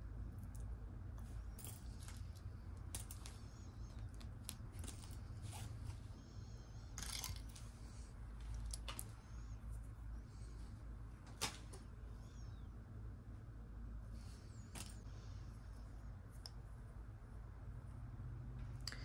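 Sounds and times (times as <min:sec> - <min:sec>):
low steady hum: 0:00.0 - 0:19.0
metal jewelry clicking and clinking: 0:01.3 - 0:05.2.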